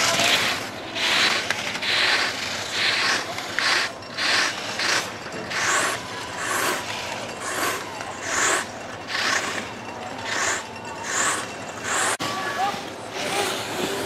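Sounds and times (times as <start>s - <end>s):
skis scraping on hard snow: 0.0s - 9.6s.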